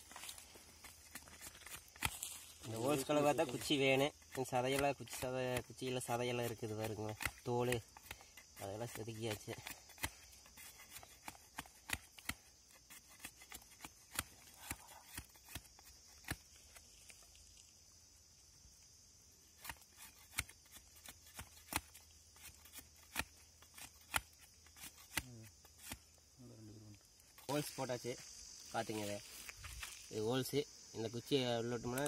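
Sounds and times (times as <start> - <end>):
knife cutting into palm stalk: 0.0 - 17.3, 19.5 - 26.2.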